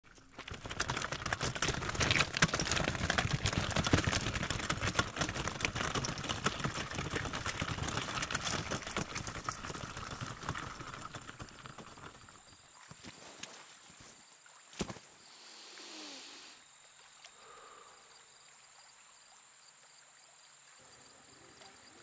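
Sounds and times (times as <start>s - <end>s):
wagon wheels rolling over gravel: 0.0s - 13.4s
footsteps on stones: 0.4s - 15.1s.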